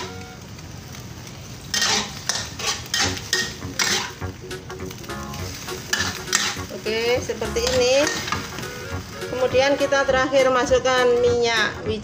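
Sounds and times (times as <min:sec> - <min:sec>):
low sizzle: 0:00.0 - 0:12.0
metal spatula scraping a wok: 0:01.7 - 0:04.2, 0:05.5 - 0:09.9.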